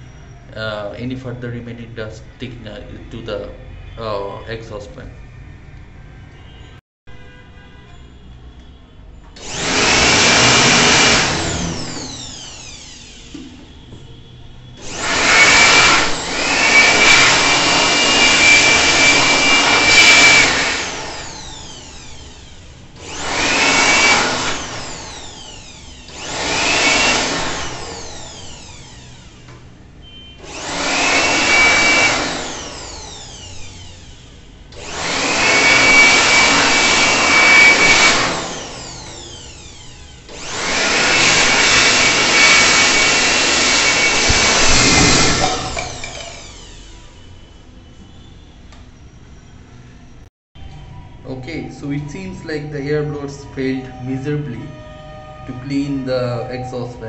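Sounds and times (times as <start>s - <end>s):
electric air blower whining: 9.4s - 14.1s, 14.8s - 48.1s, 50.7s - 57.0s.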